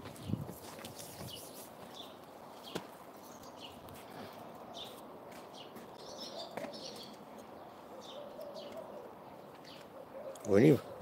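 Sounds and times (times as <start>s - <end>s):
small birds chirping: 0.2s - 11.0s.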